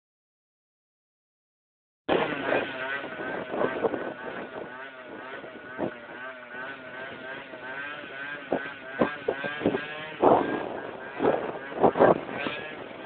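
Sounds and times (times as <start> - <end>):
scooter engine running: 2.1 - 13.0
wind gusts on microphone: 2.1 - 13.0.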